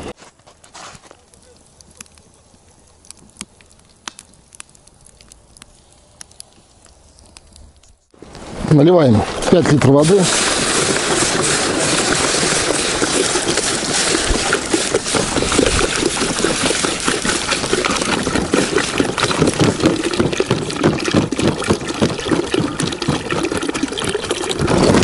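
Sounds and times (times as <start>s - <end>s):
water pouring and gurgling: 6.4s - 25.0s
water hissing on hot metal: 8.2s - 21.5s
bottle glugging: 10.4s - 25.0s.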